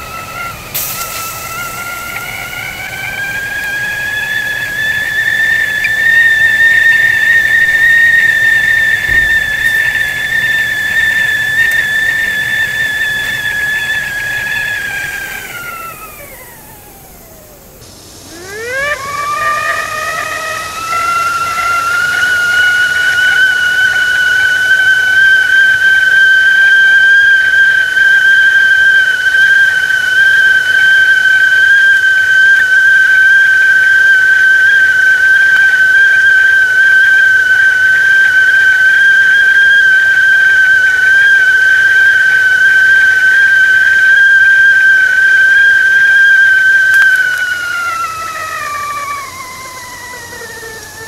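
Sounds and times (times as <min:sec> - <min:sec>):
tea kettle whistling: 0:00.0 - 0:51.0.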